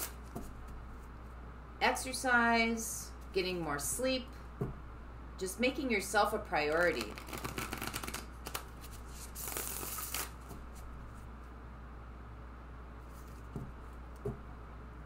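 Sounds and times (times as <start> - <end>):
low steady hum: 0.0 - 15.0
cards being riffle-shuffled: 6.7 - 10.9.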